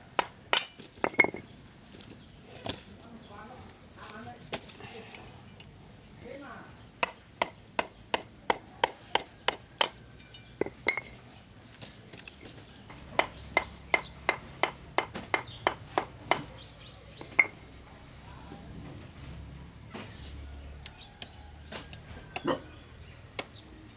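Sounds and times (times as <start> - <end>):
sharp evenly spaced knocks: 7.0 - 10.0, 12.4 - 16.6.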